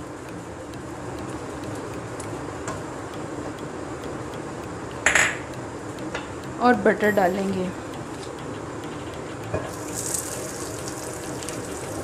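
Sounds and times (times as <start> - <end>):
oil hissing in frying pan: 9.7 - 12.0.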